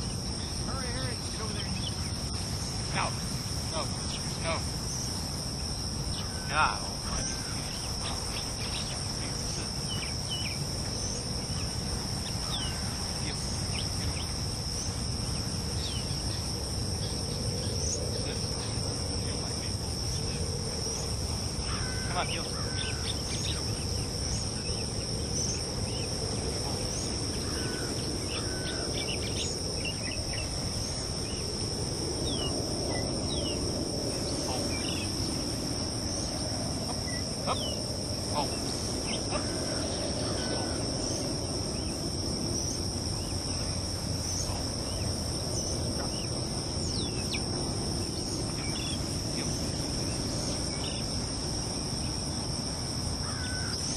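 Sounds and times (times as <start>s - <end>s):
high-pitched insect trills: 0.0s - 53.9s.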